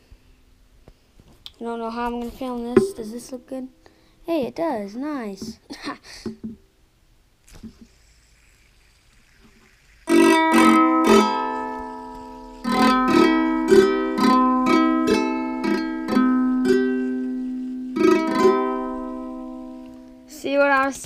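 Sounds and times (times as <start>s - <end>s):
ukulele chord strummed: 10.2s - 20.3s.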